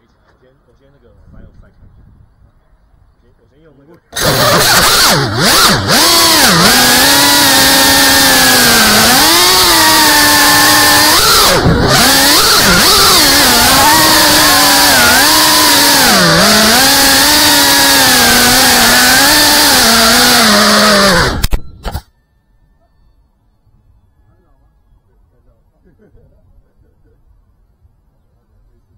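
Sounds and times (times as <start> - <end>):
drone motors whining: 4.1 - 25.2.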